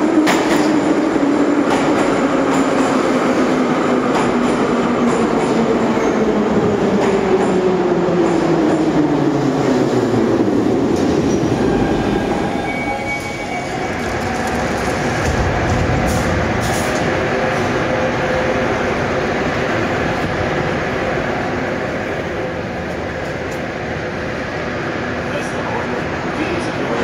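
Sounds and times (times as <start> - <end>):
wheels rumbling on rail: 0.0 - 27.0.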